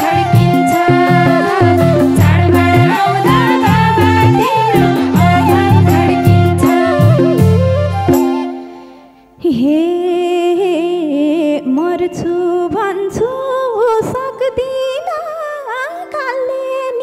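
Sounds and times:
held drone notes: 0.0 - 9.2
wavering folk melody: 0.0 - 9.4.

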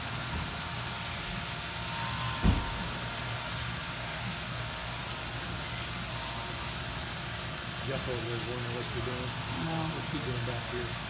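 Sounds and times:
low machine hum: 0.0 - 11.0
water spraying: 0.0 - 11.0
low thump: 2.4 - 2.8.

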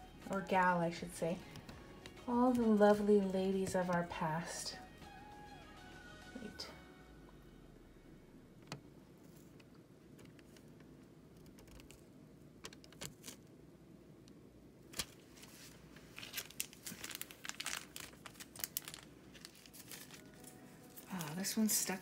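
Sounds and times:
plastic foil crinkling: 14.9 - 22.0.

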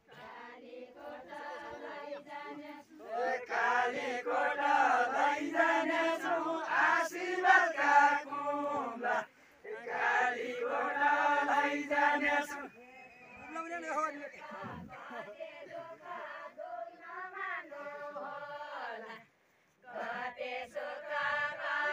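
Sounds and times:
group of men singing: 0.1 - 12.8, 14.2 - 16.9, 19.9 - 21.9.

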